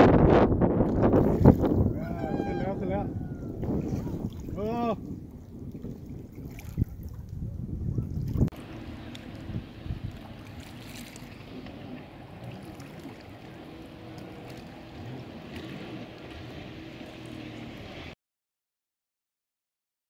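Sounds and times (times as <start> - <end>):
wind on microphone: 0.0 - 18.1
jet ski engine running: 8.5 - 18.2.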